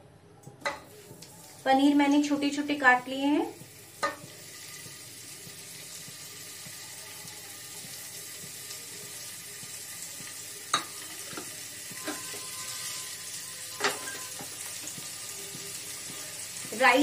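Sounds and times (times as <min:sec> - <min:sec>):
cheese frying in a pan: 0:00.7 - 0:17.0.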